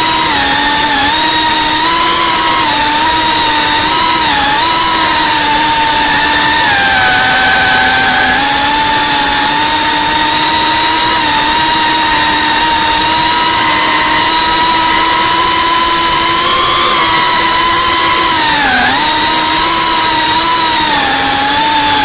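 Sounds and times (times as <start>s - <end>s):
drone motors whining: 0.0s - 22.0s.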